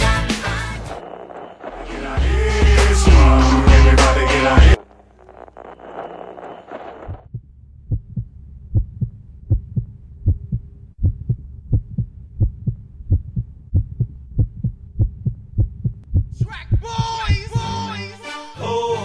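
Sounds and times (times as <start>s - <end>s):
faint steady hum: 0.0s - 17.6s
low heartbeat-like thumps: 7.0s - 17.7s.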